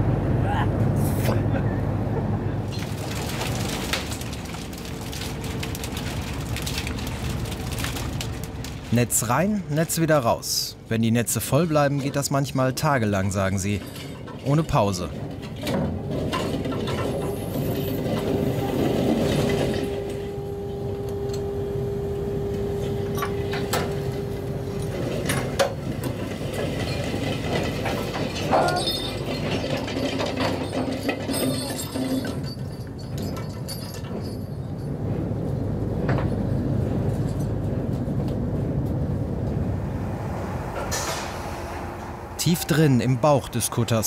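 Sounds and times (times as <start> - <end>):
deck machinery humming: 0.0 - 44.0
metallic clanks: 13.6 - 20.3, 24.7 - 35.0.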